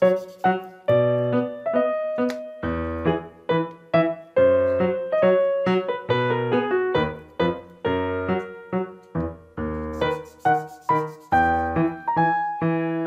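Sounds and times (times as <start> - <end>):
piano music: 0.0 - 13.0.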